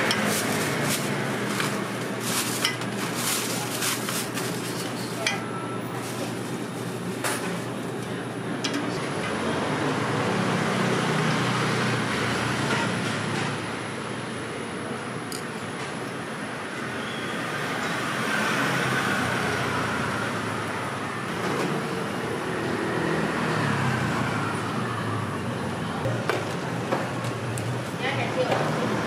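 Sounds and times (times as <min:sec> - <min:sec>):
metal utensils clinking: 0:00.0 - 0:06.3
street noise: 0:00.0 - 0:29.0.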